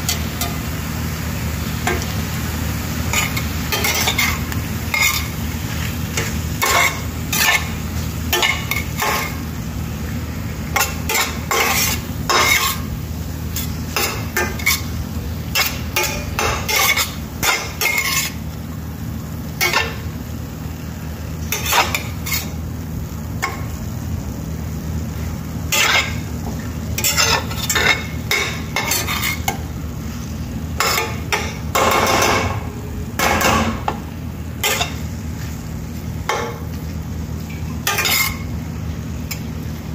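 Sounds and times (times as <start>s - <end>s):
steady low hum: 0.0s - 39.9s
metal spatula scraping a frying pan: 3.1s - 5.4s, 6.2s - 9.4s, 10.8s - 12.9s, 13.6s - 18.4s, 21.5s - 22.6s, 25.7s - 26.2s, 27.0s - 29.6s, 37.8s - 38.5s.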